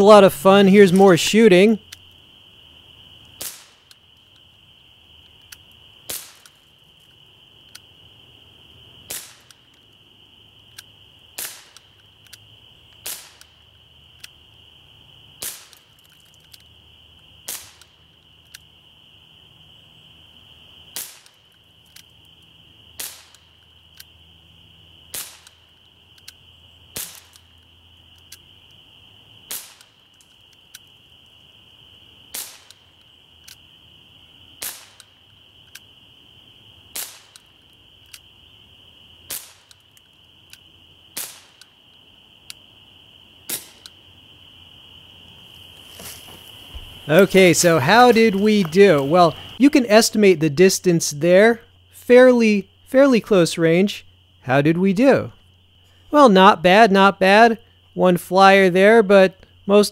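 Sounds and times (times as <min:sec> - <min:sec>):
pistol shot pops: 0:03.4 - 0:04.0, 0:06.1 - 0:06.6, 0:09.1 - 0:09.6, 0:11.4 - 0:11.9, 0:13.0 - 0:13.6, 0:15.4 - 0:15.9, 0:17.4 - 0:18.0, 0:20.9 - 0:21.4, 0:23.0 - 0:23.5, 0:25.1 - 0:25.7, 0:26.9 - 0:27.5, 0:29.5 - 0:30.0, 0:32.3 - 0:32.9, 0:34.6 - 0:35.2, 0:36.9 - 0:37.5, 0:39.3 - 0:39.8, 0:41.1 - 0:41.7, 0:43.5 - 0:44.0
faint ticks: 0:11.6 - 0:13.6, 0:17.7 - 0:18.7, 0:25.2 - 0:26.4, 0:32.6 - 0:33.6.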